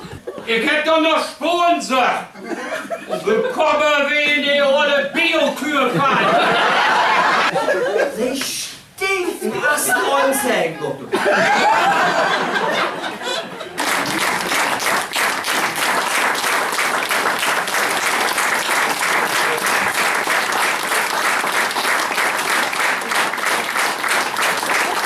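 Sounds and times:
audience applauding: 0:12.0 - 0:25.0.

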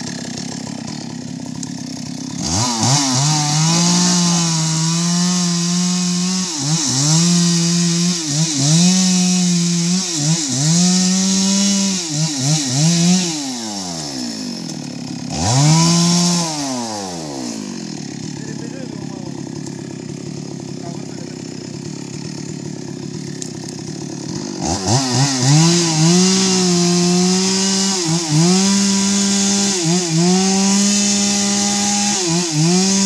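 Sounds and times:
chainsaw cutting log: 0:00.0 - 0:33.0.

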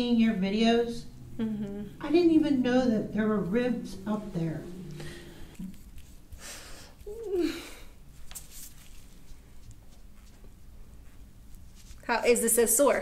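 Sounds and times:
person murmuring: 0:01.2 - 0:05.8.

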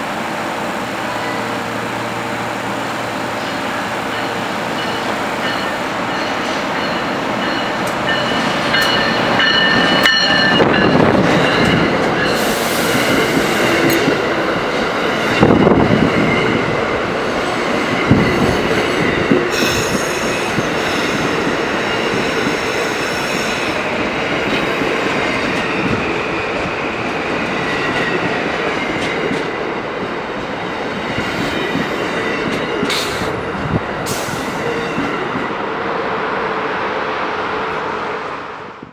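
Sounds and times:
train passing at speed: 0:00.0 - 0:38.9.

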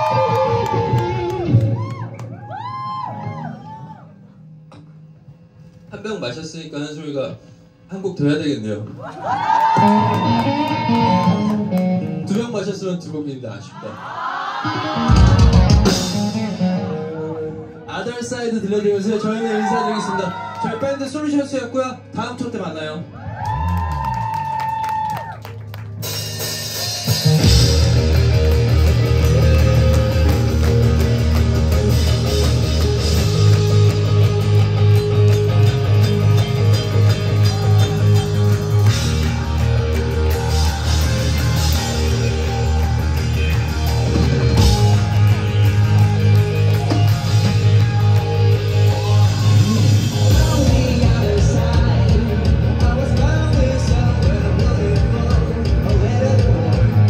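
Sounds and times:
live rock band playing: 0:00.0 - 0:02.3, 0:09.7 - 0:12.8, 0:14.7 - 0:17.9, 0:25.5 - 0:57.0
sustained low bass notes: 0:27.3 - 0:57.0.

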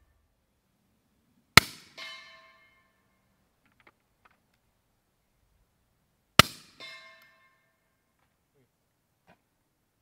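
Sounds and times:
bullet clanging on steel target: 0:01.6 - 0:03.0, 0:06.4 - 0:07.6.

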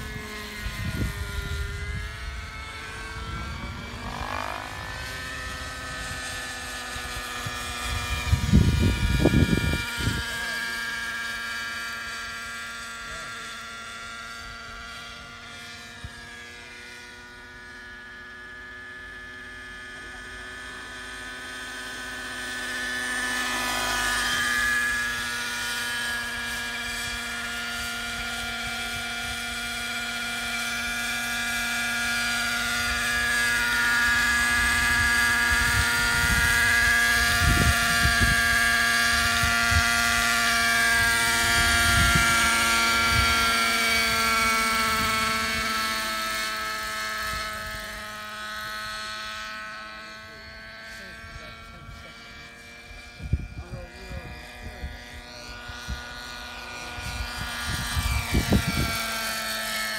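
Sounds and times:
wind buffeting on microphone: 0:00.0 - 0:04.1, 0:07.1 - 0:10.4, 0:34.8 - 0:40.0, 0:41.0 - 0:43.6, 0:53.2 - 0:56.1, 0:56.9 - 0:59.1
model helicopter whine: 0:00.0 - 0:59.9.

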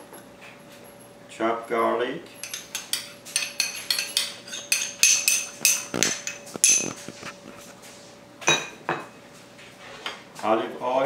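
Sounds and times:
metal spoon tapping ceramic bowl: 0:02.4 - 0:07.0.

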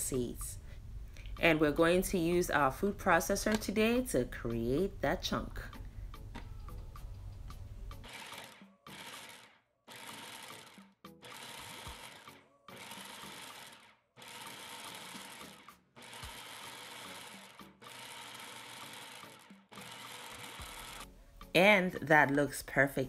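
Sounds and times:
food processor pulsing: 0:08.0 - 0:21.1.

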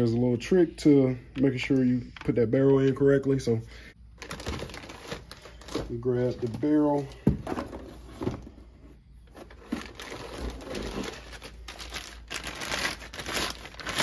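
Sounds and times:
plastic bags crinkling: 0:04.1 - 0:08.1, 0:09.4 - 0:14.0.

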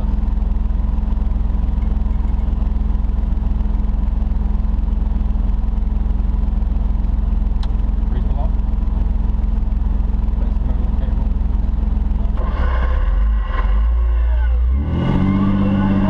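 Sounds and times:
engine idling inside cab: 0:00.0 - 0:12.5.

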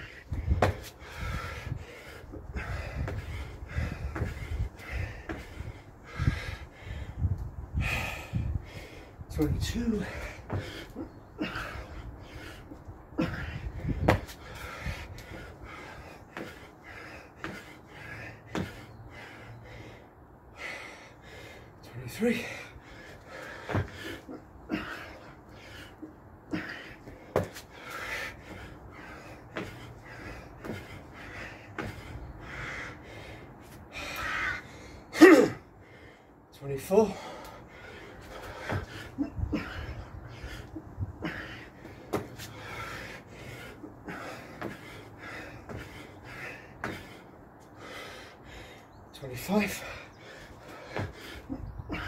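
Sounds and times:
person breathing hard: 0:00.0 - 0:49.1, 0:49.7 - 0:52.0
man panting: 0:00.0 - 0:52.0
thuds on paving slabs: 0:00.4 - 0:00.9, 0:10.5 - 0:10.8, 0:13.3 - 0:14.7, 0:18.5 - 0:18.8, 0:26.6 - 0:28.7, 0:41.3 - 0:42.9, 0:44.1 - 0:46.0, 0:46.8 - 0:47.2, 0:50.7 - 0:52.0.

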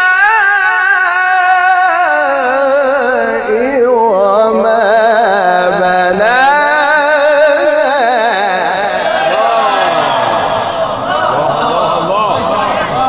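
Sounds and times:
man reciting melodically: 0:00.0 - 0:09.5.

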